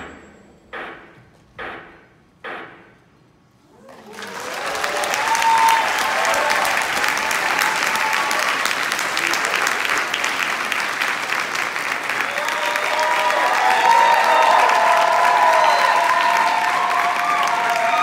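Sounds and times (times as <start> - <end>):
audience applause: 3.7 - 18.0.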